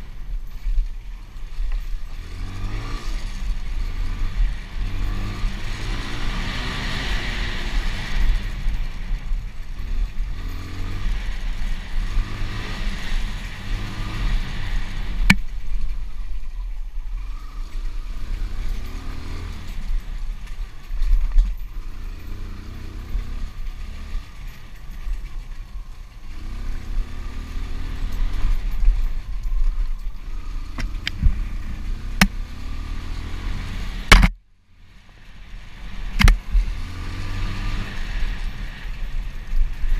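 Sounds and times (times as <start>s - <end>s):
motorbike engine revving: 1.8s - 15.9s, 17.3s - 34.4s, 35.4s - 39.9s
sharp knocks: 34.1s - 34.4s.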